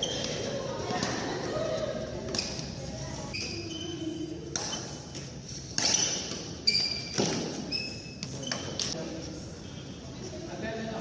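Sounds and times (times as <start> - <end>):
sneakers squeaking on court: 0.0 - 1.4, 2.3 - 9.0
rackets smacking shuttlecock: 0.0 - 1.6, 2.2 - 9.0.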